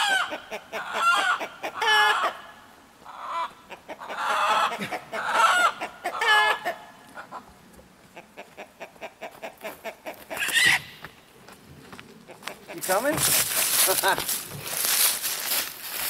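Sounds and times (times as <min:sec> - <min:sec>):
chickens squawking: 0:00.0 - 0:11.0.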